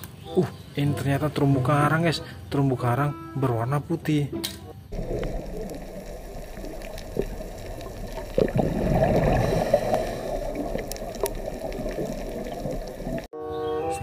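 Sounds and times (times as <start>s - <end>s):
underwater air bubbling: 4.9s - 13.3s
faint clicks: 10.4s - 13.3s.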